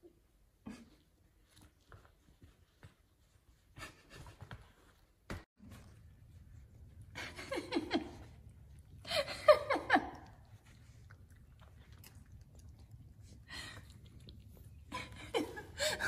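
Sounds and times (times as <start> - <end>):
person giggling: 7.1 - 8.4, 9.0 - 10.4, 14.9 - 16.0.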